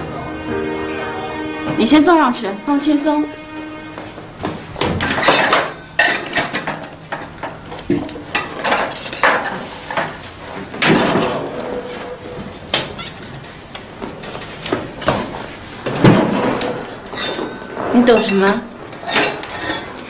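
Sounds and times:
metal instruments clinking on tray: 5.0s - 7.4s.

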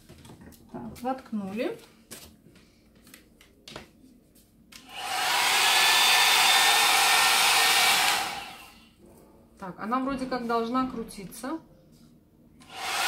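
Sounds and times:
hot-air brush fan whine and airflow: 4.8s - 8.9s, 12.6s - 13.0s.

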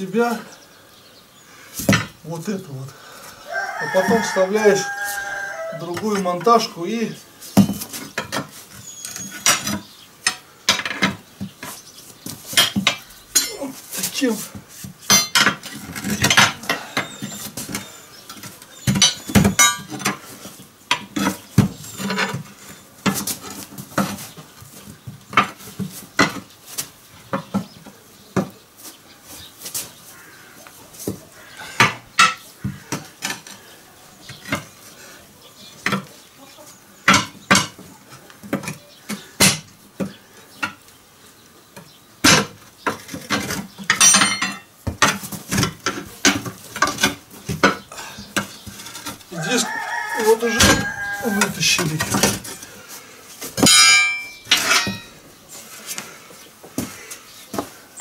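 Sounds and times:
tyre irons clanking on steel rim: 7.6s - 11.8s, 12.5s - 14.2s, 15.0s - 20.3s, 20.9s - 24.2s, 42.3s - 52.6s, 53.6s - 55.2s.

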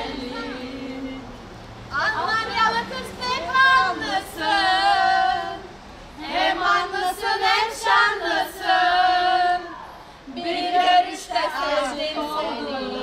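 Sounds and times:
woman singing: 0.0s - 1.3s, 1.9s - 5.6s, 10.3s - 13.0s.

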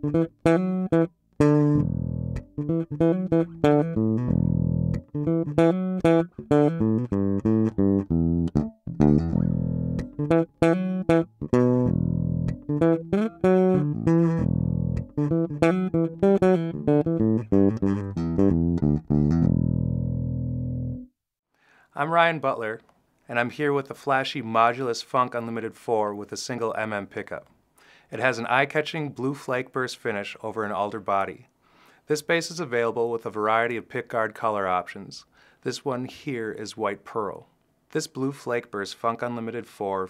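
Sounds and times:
electric bass funk riff: 0.0s - 21.1s.

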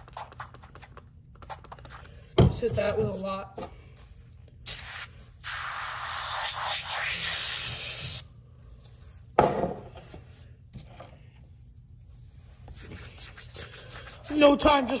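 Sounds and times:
foam sprayer spraying: 4.7s - 8.2s.

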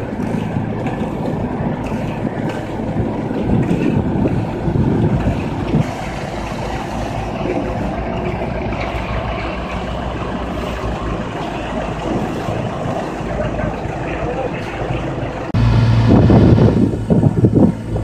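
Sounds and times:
paving machine engine running: 0.0s - 18.0s.

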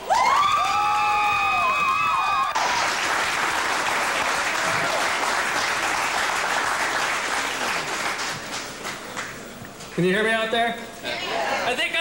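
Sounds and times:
crowd applauding: 0.0s - 9.5s.

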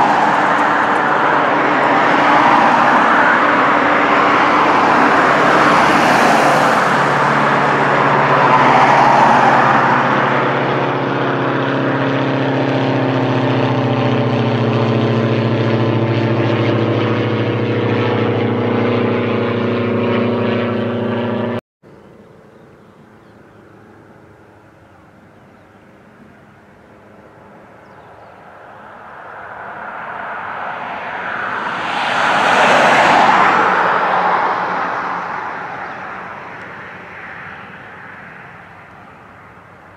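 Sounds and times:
loud rushing noise: 0.0s - 10.9s, 29.1s - 36.5s
propeller aircraft engine drone: 0.0s - 39.9s.

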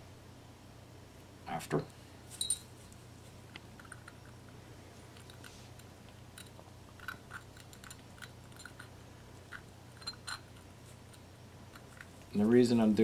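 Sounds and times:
low steady hum: 0.0s - 13.0s
porcelain pieces clicking: 3.5s - 12.2s.

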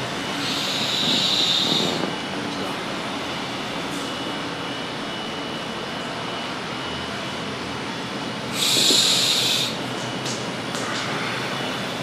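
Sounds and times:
steady background noise: 0.0s - 12.0s
forceful hissing exhale: 0.4s - 2.1s, 8.5s - 9.8s.

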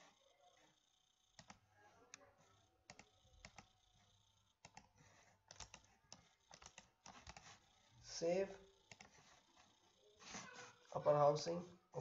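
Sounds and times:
computer mouse clicks: 1.3s - 2.2s, 2.9s - 3.7s, 4.6s - 4.9s, 5.5s - 7.6s, 8.9s - 9.2s.

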